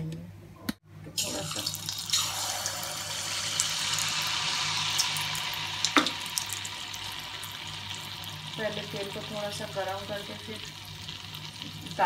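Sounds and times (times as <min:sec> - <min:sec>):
batter sizzling in hot oil: 0:01.2 - 0:12.0.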